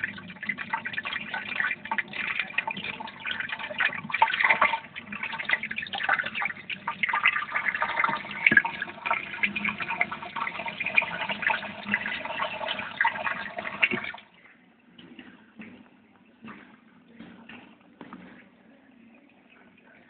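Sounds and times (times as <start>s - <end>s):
water trickling and splashing: 0.0s - 14.3s.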